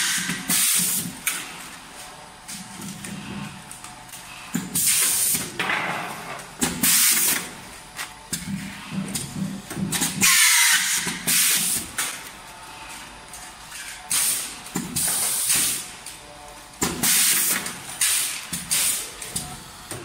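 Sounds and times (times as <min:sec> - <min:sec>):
pneumatic air hisses: 0:00.0 - 0:01.1, 0:10.2 - 0:11.8, 0:14.1 - 0:15.9, 0:17.0 - 0:19.1.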